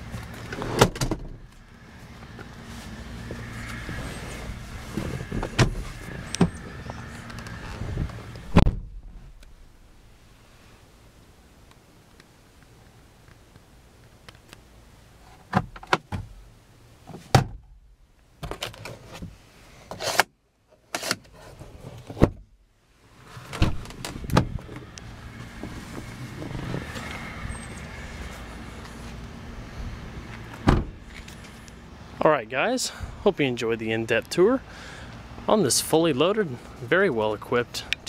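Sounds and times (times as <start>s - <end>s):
car door opening: 3.3s - 9.5s, 23.3s - 27.7s, 30.5s - 31.2s.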